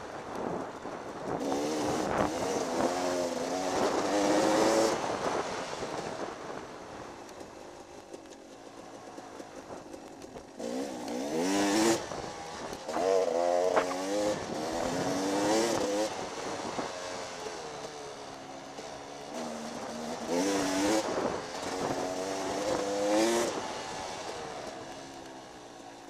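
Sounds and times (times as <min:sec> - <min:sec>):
dirt bike engine revving: 0:01.4 - 0:05.6, 0:10.6 - 0:17.6, 0:19.0 - 0:24.8.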